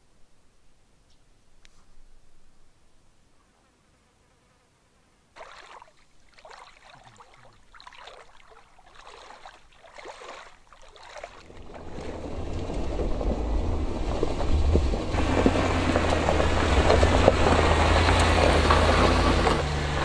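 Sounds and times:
footsteps splashing in water: 5.4 - 12.2
vehicle engine rumble: 11.4 - 20.0.

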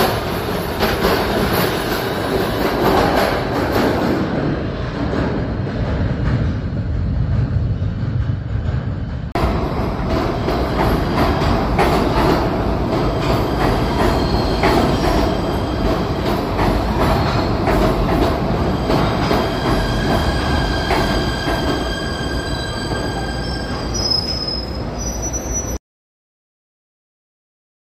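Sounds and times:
subway train running: 0.0 - 25.8
high squealing of wheels and brakes: 13.2 - 15.9, 18.7 - 25.8.

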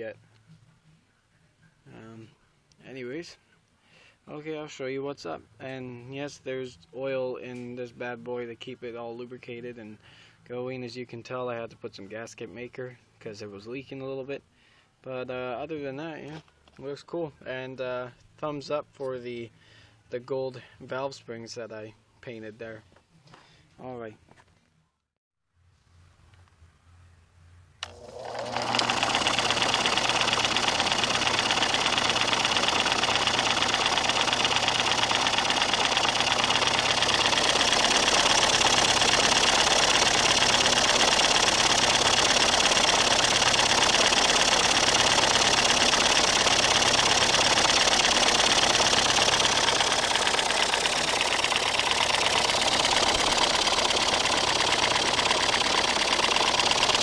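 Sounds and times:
electric motor spinning: 27.8 - 57.0
engine turning over clatter: 27.8 - 57.0
motor switch click: 27.8 - 57.0.

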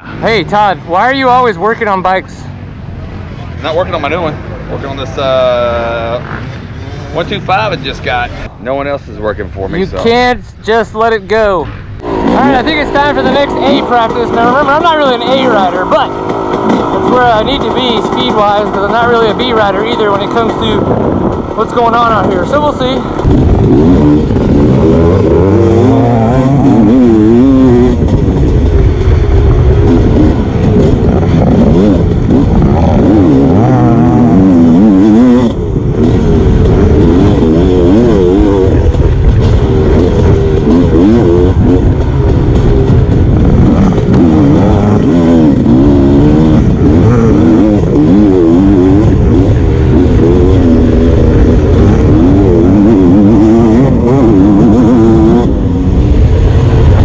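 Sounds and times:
dirt bike engine revving: 11.5 - 57.0.

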